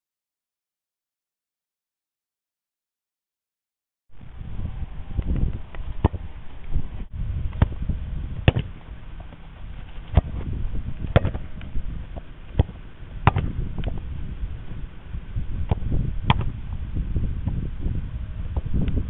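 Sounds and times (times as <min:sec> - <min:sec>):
wind rumble on microphone: 0:04.1 - 0:19.0
ball kicked against shield thuds: 0:08.4 - 0:08.8, 0:10.1 - 0:11.4, 0:12.1 - 0:14.0, 0:15.7 - 0:16.5.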